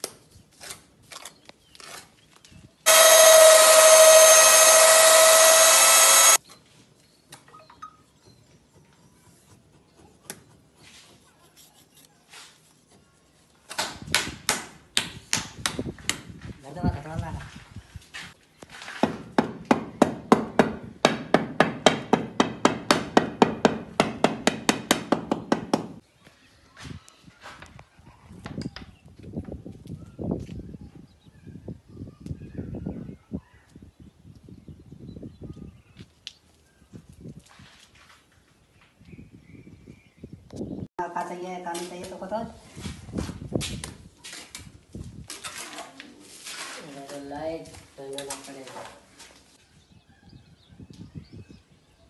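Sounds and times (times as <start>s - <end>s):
electric paddle mixer motor: 2.9s - 6.4s
faint scrapes and knocks: 8.9s - 13.5s
hand hammer striking: 19.0s - 26.0s.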